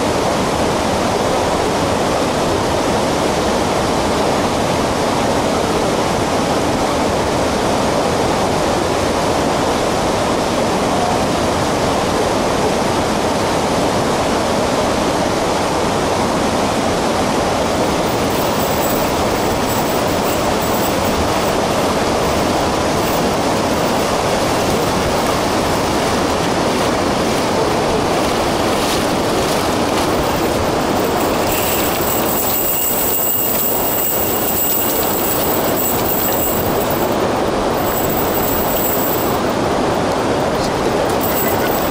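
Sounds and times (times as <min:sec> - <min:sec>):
river running over stones: 0:00.0 - 0:41.9
thin high-pitched tones: 0:17.7 - 0:24.3, 0:30.5 - 0:39.6, 0:41.0 - 0:41.9.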